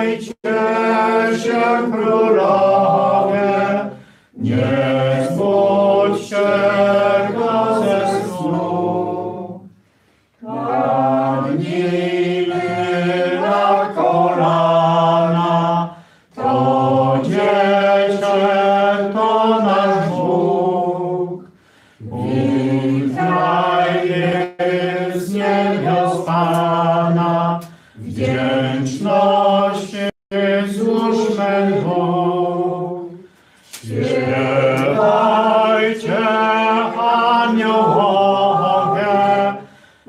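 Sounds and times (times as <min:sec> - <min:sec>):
person singing unaccompanied: 0:34.0 - 0:39.6.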